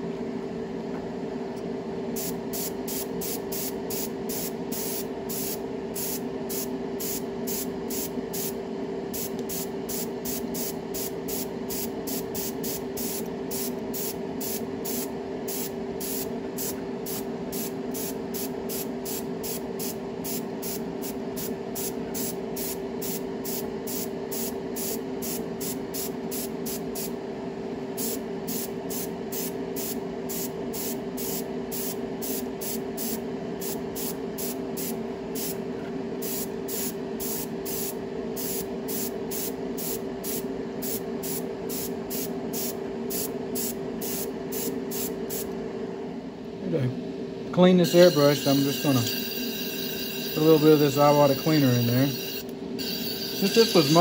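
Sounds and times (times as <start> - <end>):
steady motor hum: 0.0 - 54.0
airbrush spraying hiss: 2.2 - 8.6, 36.2 - 45.5, 47.8 - 54.0.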